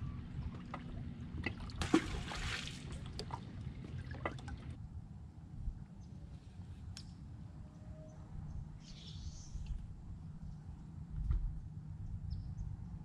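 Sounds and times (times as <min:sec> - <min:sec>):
water dripping: 0:00.4 - 0:04.8
splash in water: 0:00.7 - 0:04.8.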